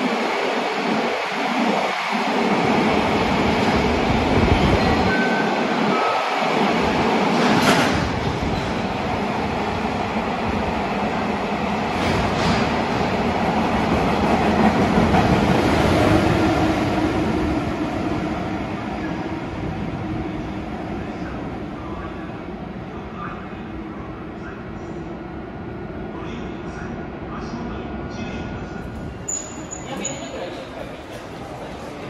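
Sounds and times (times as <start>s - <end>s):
train wheels rumbling on rail: 0.0s - 22.9s.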